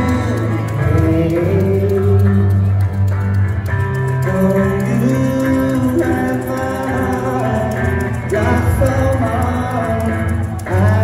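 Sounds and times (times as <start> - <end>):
electric guitar: 0.0 - 11.0
steady bass line: 0.0 - 11.0
men singing: 4.3 - 11.0.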